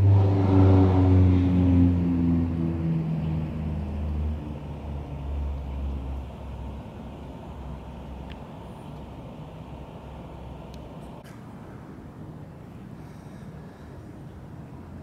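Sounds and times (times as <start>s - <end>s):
vehicle engine passing: 0.0s - 11.4s.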